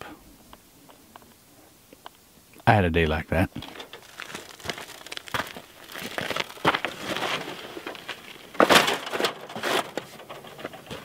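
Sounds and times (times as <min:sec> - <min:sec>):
footsteps crunching on gravel: 0:03.9 - 0:08.9
printer scraping on ground: 0:06.0 - 0:11.0.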